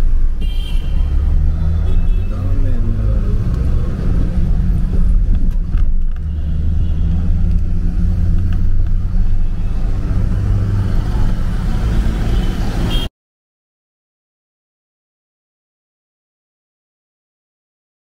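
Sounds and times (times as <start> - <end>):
car interior road rumble: 0.0 - 12.9.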